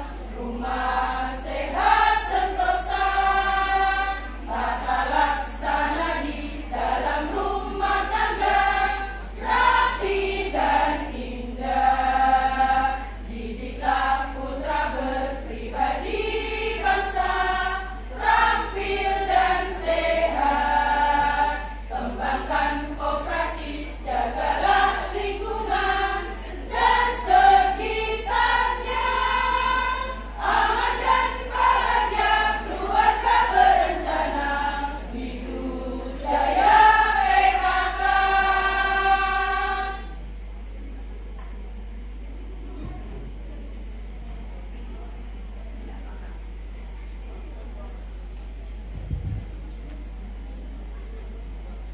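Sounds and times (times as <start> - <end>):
women's choir singing: 0.0 - 40.4.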